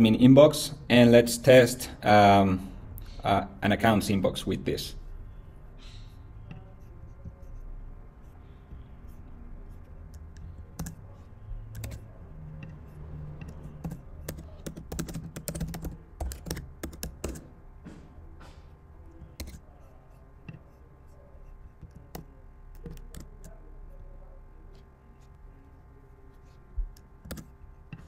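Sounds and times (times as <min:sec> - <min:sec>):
typing on computer keyboard: 0:10.1 - 0:11.0, 0:11.7 - 0:17.5, 0:19.4 - 0:19.6, 0:21.8 - 0:23.6, 0:27.0 - 0:27.5.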